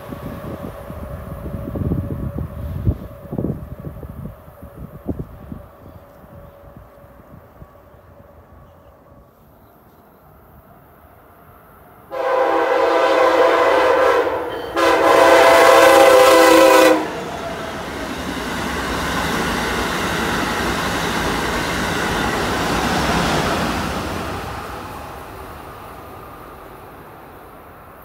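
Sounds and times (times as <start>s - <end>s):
train wheels rumbling on rail: 0.0s - 10.7s, 12.0s - 28.0s
train horn blasts: 12.1s - 17.4s.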